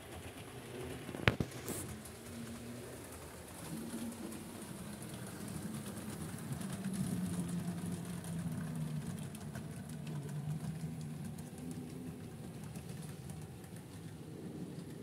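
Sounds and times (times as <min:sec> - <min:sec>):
model locomotive motor humming: 0:00.0 - 0:15.0
wheels clicking on track: 0:00.0 - 0:15.0.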